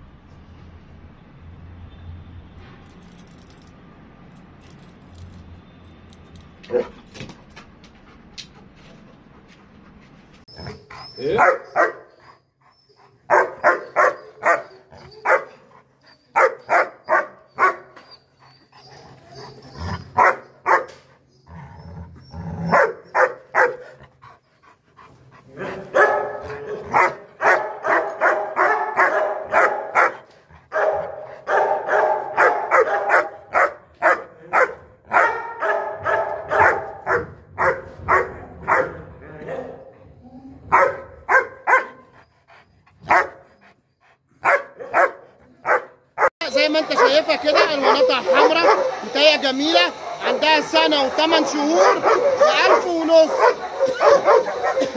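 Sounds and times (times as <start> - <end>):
dog barking: 11.3 - 12.1, 13.3 - 15.6, 16.4 - 18.0, 20.2 - 21.0, 22.7 - 24.0, 25.6 - 39.9, 40.7 - 42.0, 43.1 - 43.4, 44.4 - 54.9.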